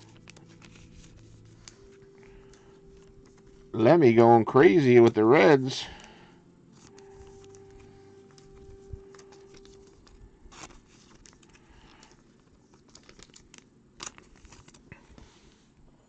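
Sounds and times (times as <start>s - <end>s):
faint steady tone: 0.0s - 12.8s
trading cards rustling: 0.0s - 15.7s
card clicks and taps: 6.0s - 11.4s.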